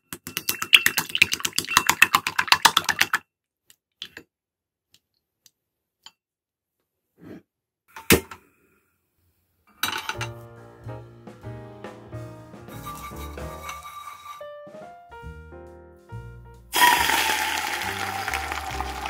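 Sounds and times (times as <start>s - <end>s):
wooden spoon beating eggs: 0.1s - 3.2s.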